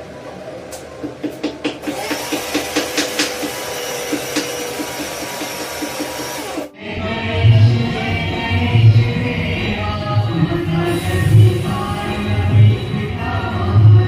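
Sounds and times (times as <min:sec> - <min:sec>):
wooden pestle pounding: 0:01.0 - 0:06.7
background music with a beat: 0:01.0 - 0:09.5
mixer grinder whining: 0:01.8 - 0:06.8.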